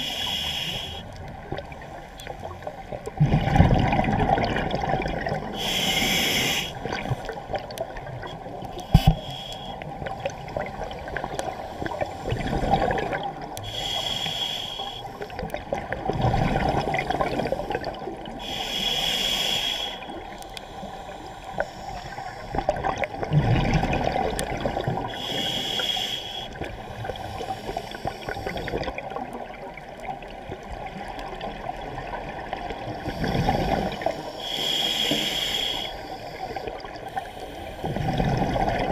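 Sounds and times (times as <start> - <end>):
regulator hissing inhalation: 0.0 - 1.1, 5.6 - 7.0, 8.8 - 9.8, 13.6 - 15.2, 18.4 - 22.2, 25.1 - 26.6, 33.2 - 37.9
bubbling exhaled air: 3.1 - 7.7, 22.6 - 26.0, 37.8 - 38.9.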